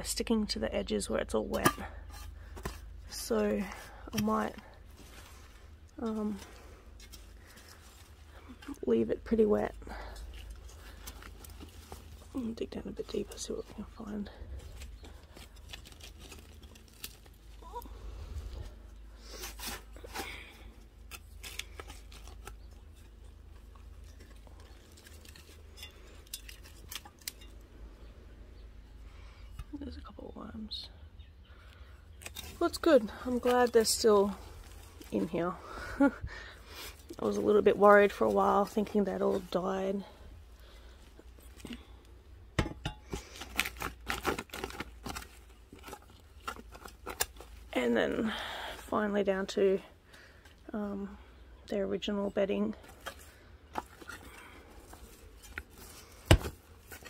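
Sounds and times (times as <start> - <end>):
hand tool scraping compost: 1.1 - 17.8, 18.4 - 27.6, 32.2 - 35.9, 36.6 - 42.0, 52.0 - 57.0.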